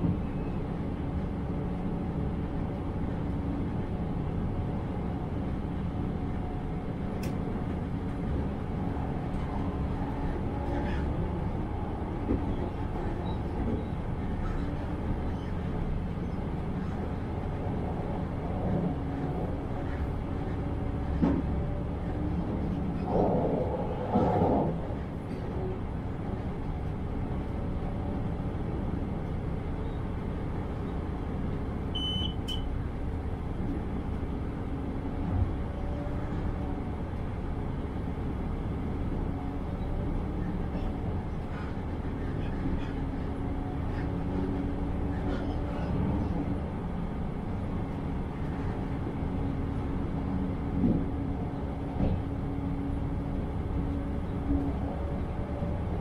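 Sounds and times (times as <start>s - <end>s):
train wheels rumbling on rail: 0.0s - 56.0s
short electronic beep: 32.0s - 32.6s.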